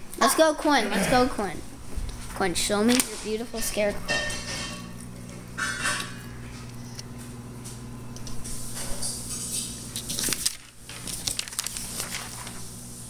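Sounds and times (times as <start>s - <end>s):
steady low hum: 0.0s - 13.0s
paper rustling: 2.7s - 3.8s, 8.8s - 12.8s.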